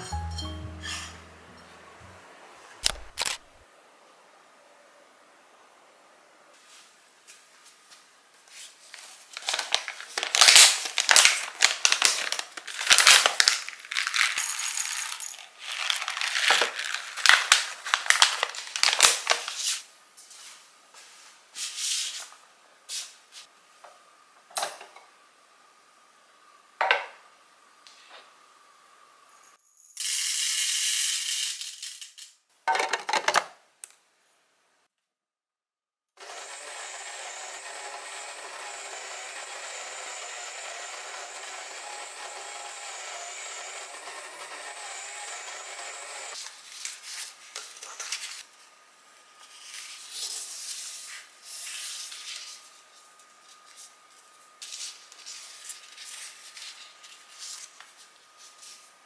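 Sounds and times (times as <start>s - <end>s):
coffee grinder motor grinding: 9.4s - 19.1s, 36.2s - 46.4s
coffee beans rattling into hopper: 9.4s - 19.2s.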